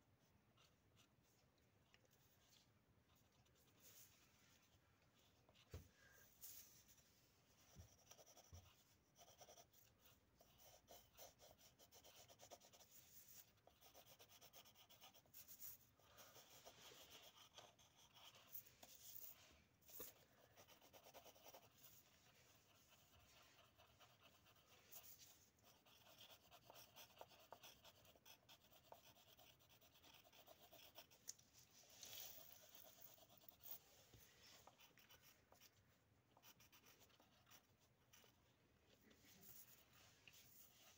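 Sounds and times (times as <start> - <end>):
pencils scratching on paper: 7.6 - 38.4.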